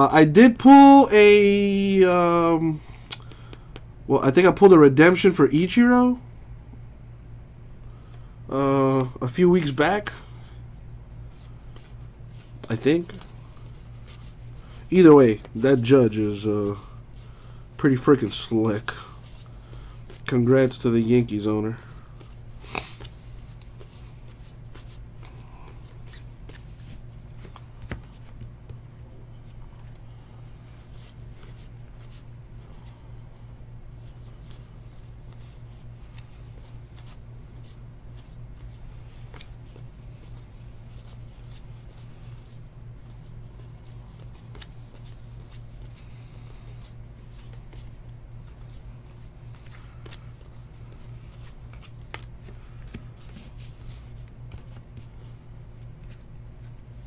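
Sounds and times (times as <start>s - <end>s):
steady low hum: 0.0s - 57.0s
trading cards flicking and sliding: 21.7s - 33.0s, 34.0s - 57.0s.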